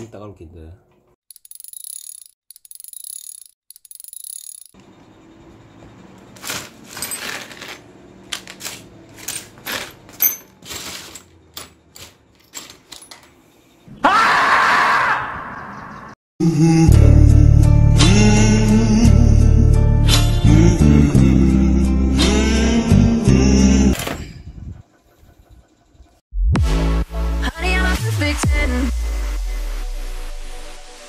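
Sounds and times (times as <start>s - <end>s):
metal parts clinking in plastic tub: 6.4s - 13.4s.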